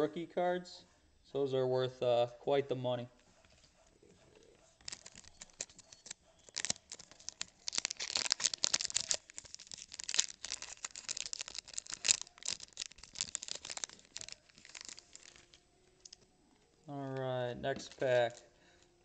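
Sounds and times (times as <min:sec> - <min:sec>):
cards shuffling and scraping: 0:04.8 - 0:16.2, 0:17.7 - 0:18.4.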